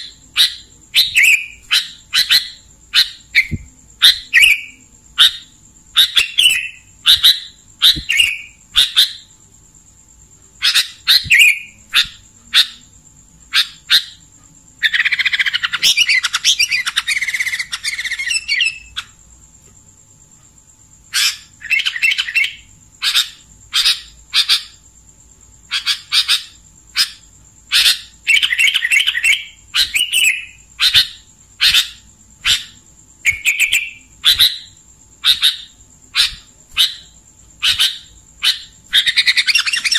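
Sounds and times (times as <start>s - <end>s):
bird calling sharp notes: 0.0s - 9.2s, 10.6s - 12.8s, 25.7s - 39.9s
bird buzzy chatter: 0.0s - 9.4s, 10.6s - 19.2s, 25.6s - 39.9s.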